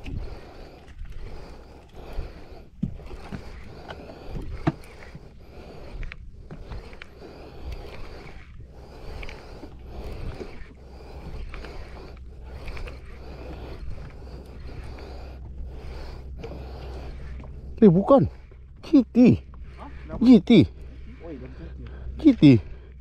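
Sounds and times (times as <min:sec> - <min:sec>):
sea noise: 0:00.0 - 0:23.0
wind: 0:00.0 - 0:23.0.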